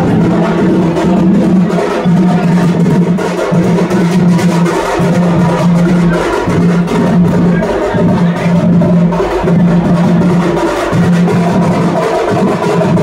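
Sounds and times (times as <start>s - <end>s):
drums: 0.0s - 13.0s
wood-block-like percussion: 0.0s - 13.0s.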